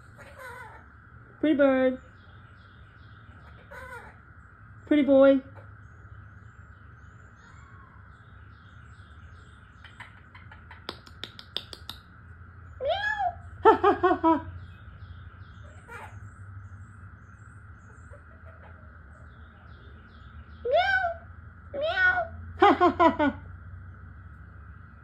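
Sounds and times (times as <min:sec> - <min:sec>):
parrot calling: 0:00.0 - 0:01.0, 0:03.3 - 0:04.3, 0:15.6 - 0:16.4
sharp clicks: 0:10.8 - 0:12.0.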